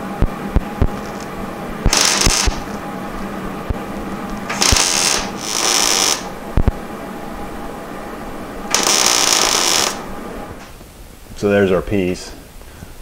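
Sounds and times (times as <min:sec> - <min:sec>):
welding arc crackling: 0:00.0 - 0:02.9, 0:03.5 - 0:06.8, 0:08.6 - 0:10.9
steady low hum: 0:00.0 - 0:13.0.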